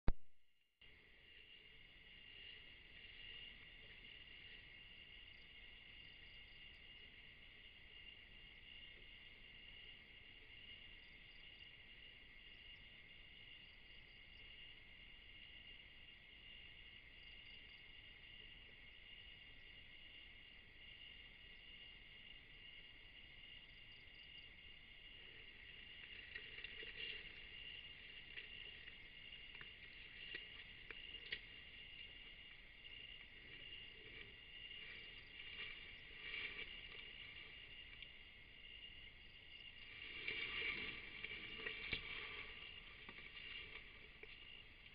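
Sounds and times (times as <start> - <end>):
crickets chirping: 0.8 - 44.9
rustling through vegetation: 25.2 - 38.2, 39.6 - 44.9.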